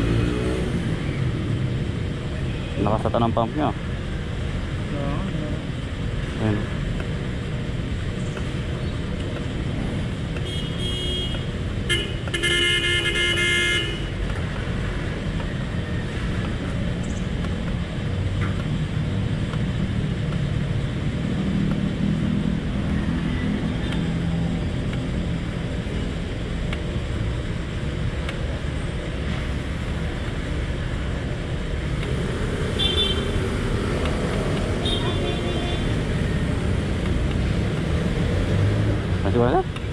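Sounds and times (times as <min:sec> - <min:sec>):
low rumble of traffic: 0:00.0 - 0:39.9
vehicle horn honking: 0:10.4 - 0:14.2, 0:32.8 - 0:33.4, 0:34.8 - 0:35.9.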